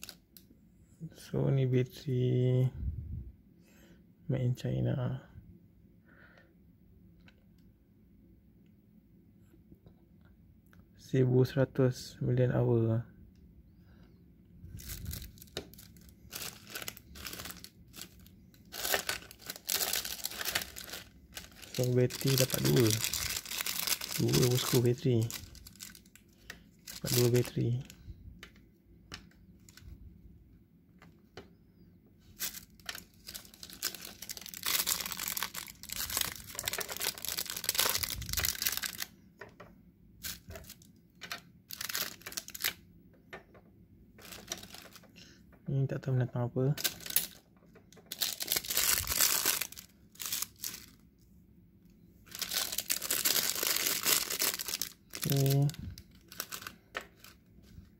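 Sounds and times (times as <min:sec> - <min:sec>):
plastic bags crinkling: 0:00.0 - 0:00.2, 0:14.7 - 0:28.0, 0:32.3 - 0:39.1, 0:40.2 - 0:42.8, 0:44.2 - 0:45.2, 0:46.8 - 0:51.0, 0:52.2 - 0:57.9.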